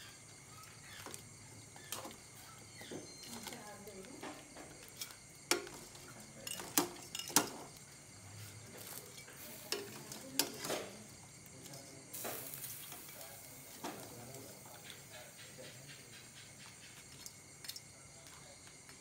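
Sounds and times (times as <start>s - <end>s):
high hiss: 12.1s - 16.4s.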